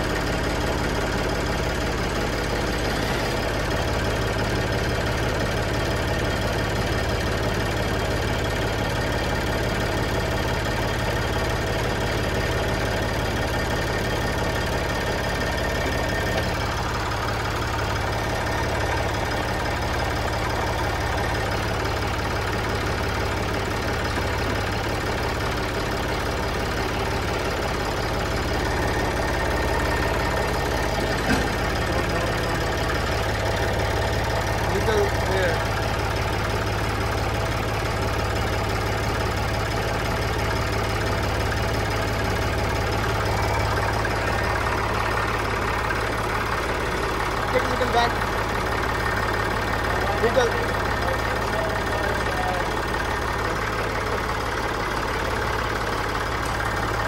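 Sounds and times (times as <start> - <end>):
tractor engine idling: 0.0 - 57.0.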